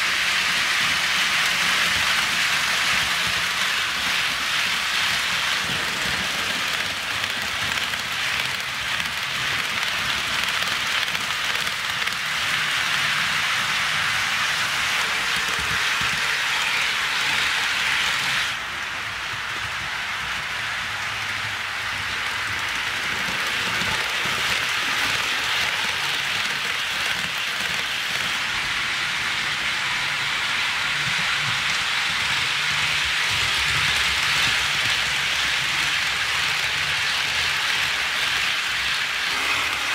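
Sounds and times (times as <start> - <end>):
model train wheels clattering: 0.0 - 28.6.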